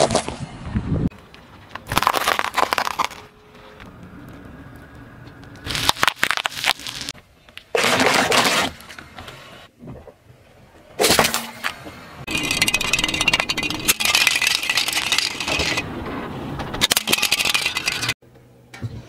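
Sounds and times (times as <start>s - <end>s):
tyre crushing objects on asphalt: 1.8s - 3.3s, 5.6s - 8.8s.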